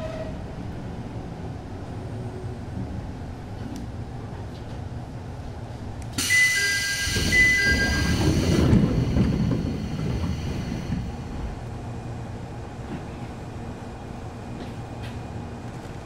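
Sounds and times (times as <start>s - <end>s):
air hiss from train doors: 6.1s - 11.2s
train doors sliding open: 6.1s - 11.6s.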